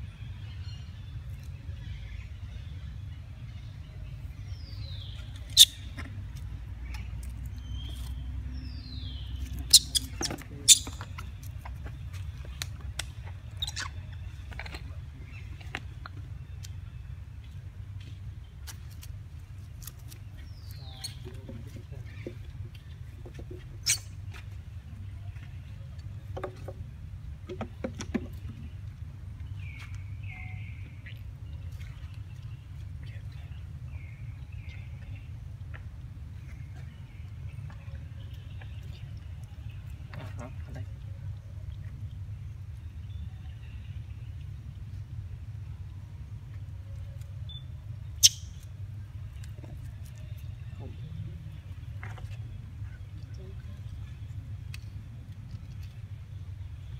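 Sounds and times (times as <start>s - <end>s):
low outdoor rumble: 0.0s - 56.9s
monkey squeaks falling in pitch: 9.7s - 11.2s, 23.8s - 24.1s.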